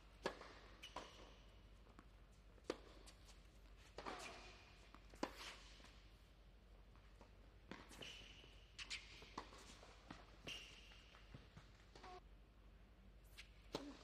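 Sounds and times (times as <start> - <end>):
tennis racket hitting ball: 0.2 - 1.4, 3.9 - 5.9
tennis ball bounces: 0.2 - 3.1.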